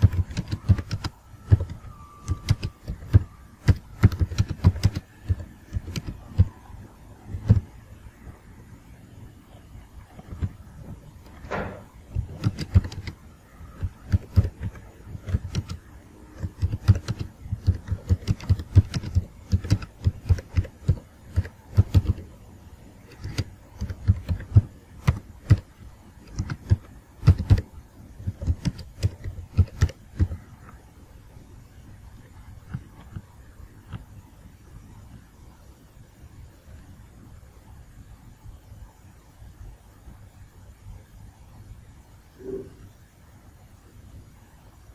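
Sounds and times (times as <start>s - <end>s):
keyboard typing clicks: 0.0s - 6.6s, 7.3s - 7.7s, 11.6s - 22.2s, 23.0s - 30.8s.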